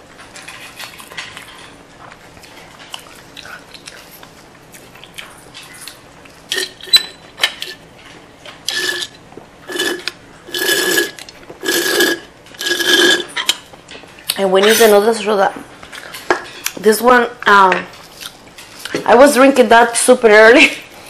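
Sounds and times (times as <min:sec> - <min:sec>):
chewing: 0:00.6 - 0:06.8
slurping through metal straw: 0:08.7 - 0:13.4.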